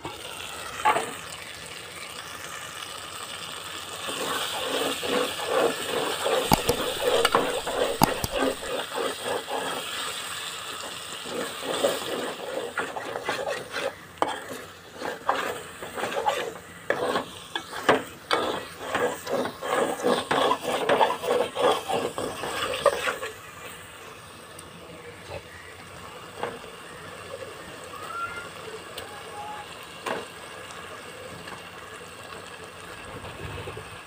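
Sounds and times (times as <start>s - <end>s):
curry simmering hiss: 0.0s - 34.0s
metal spoon scraping a pot: 6.1s - 9.7s, 11.7s - 23.2s.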